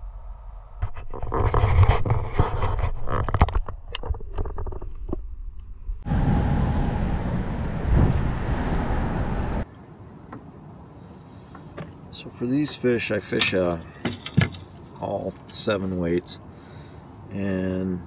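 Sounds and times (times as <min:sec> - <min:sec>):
low rumble: 0:00.0 - 0:01.3, 0:04.8 - 0:09.7
steady rushing noise: 0:06.0 - 0:09.7.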